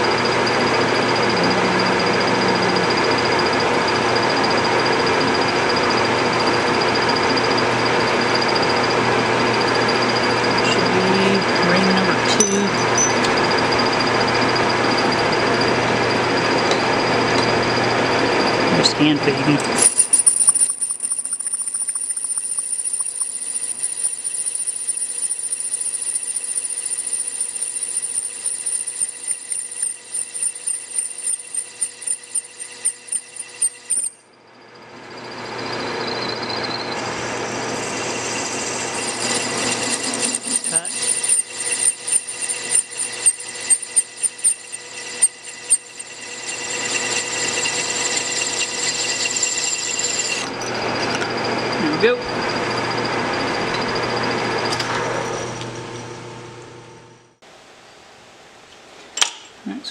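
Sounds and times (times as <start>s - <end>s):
metal lathe tool squealing: 0.0s - 55.7s
lathe tool chattering clicks: 19.6s - 34.1s, 38.0s - 50.5s.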